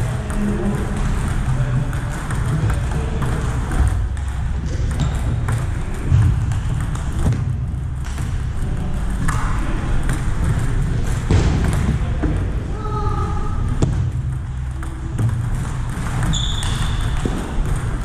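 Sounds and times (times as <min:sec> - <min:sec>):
ping-pong ball clicking off paddles: 0:00.0 - 0:12.5, 0:13.6 - 0:18.0
steady low hum: 0:00.0 - 0:18.0.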